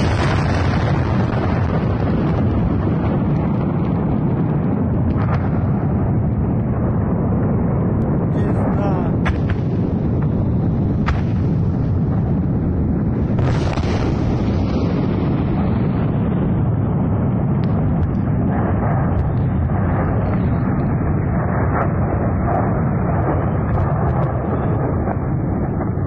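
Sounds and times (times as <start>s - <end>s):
explosion rumbling roar: 0.0s - 26.0s
faint sharp cracks: 9.2s - 10.3s, 11.0s - 11.4s.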